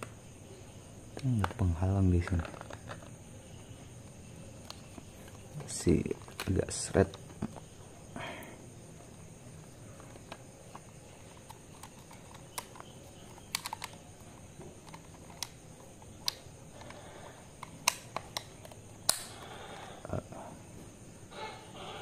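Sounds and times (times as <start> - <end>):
plastic clicks and taps: 10.0 - 17.0.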